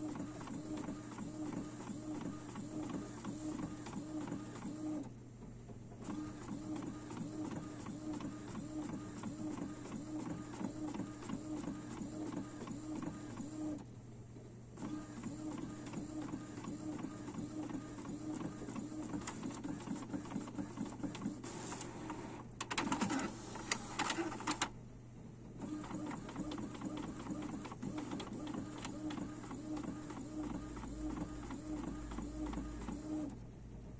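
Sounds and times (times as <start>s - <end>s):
printer print head whirring: 0.0s - 5.2s, 6.0s - 13.9s, 14.8s - 24.8s, 25.6s - 33.4s
printer clicking and rattling: 14.8s - 24.8s, 25.6s - 33.3s.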